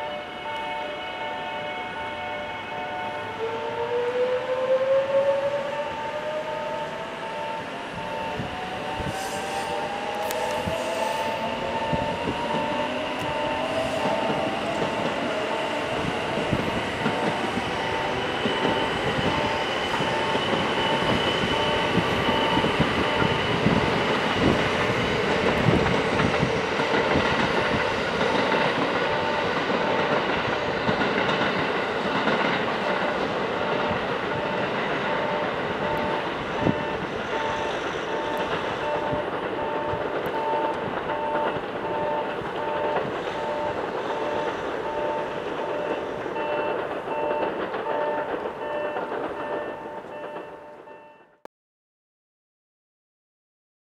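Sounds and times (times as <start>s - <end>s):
wheels rumbling on rail: 0.0s - 51.4s
train motor whine: 3.3s - 31.5s, 32.2s - 51.4s
repeating electronic beep: 17.2s - 23.6s, 33.6s - 51.3s.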